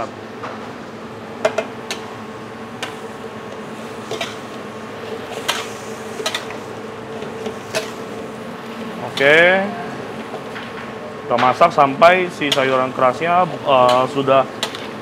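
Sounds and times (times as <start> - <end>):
gas burner hissing: 0.8 - 15.0
vegetables cooking in a wok: 0.9 - 9.4, 12.4 - 15.0.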